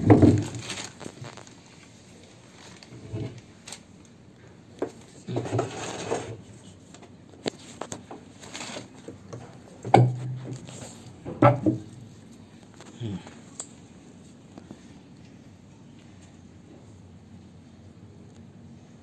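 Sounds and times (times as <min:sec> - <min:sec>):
knocks and clicks of plastic parts: 0:09.8 - 0:10.7, 0:11.3 - 0:12.0.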